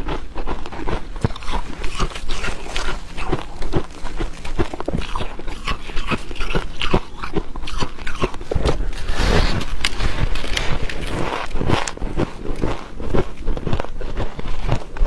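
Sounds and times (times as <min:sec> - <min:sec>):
frost crunching being chewed: 0:00.0 - 0:15.0.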